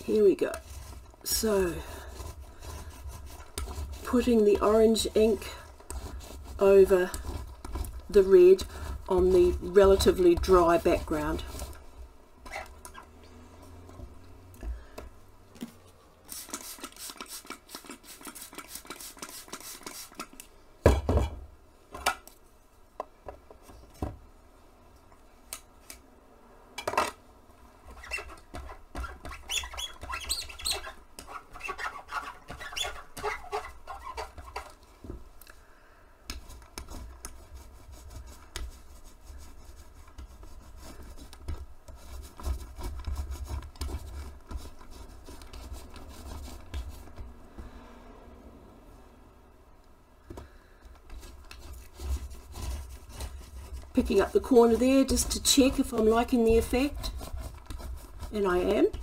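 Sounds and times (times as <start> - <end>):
sponge roller rubbing: 0.0 - 13.1, 16.3 - 20.3, 27.9 - 34.8, 36.4 - 47.4, 51.1 - 59.0.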